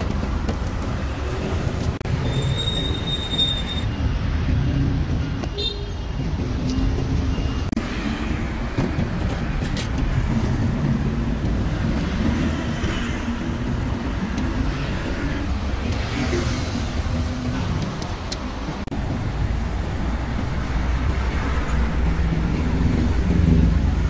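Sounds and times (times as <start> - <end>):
traffic rumble: 0.0 - 24.0.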